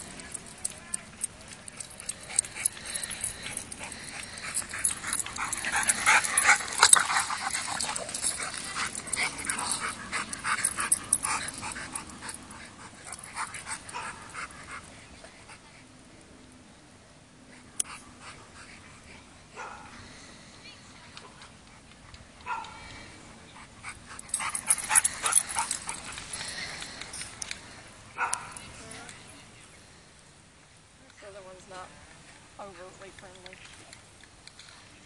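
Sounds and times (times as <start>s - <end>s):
dogs play-wrestling vocalizing: 1.5s - 14.9s, 23.6s - 27.4s.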